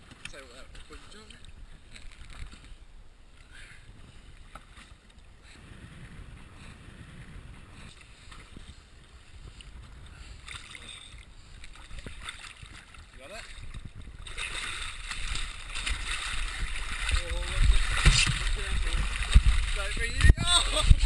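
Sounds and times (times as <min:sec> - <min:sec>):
wind rumbling on microphone: 0:05.3 - 0:21.0
water slapping against boat hull: 0:11.6 - 0:21.0.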